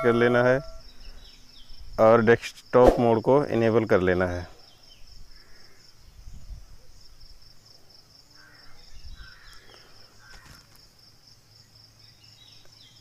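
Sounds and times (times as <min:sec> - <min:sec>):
faint short calls: 0:00.0 - 0:01.2
insects chirring: 0:00.0 - 0:13.0.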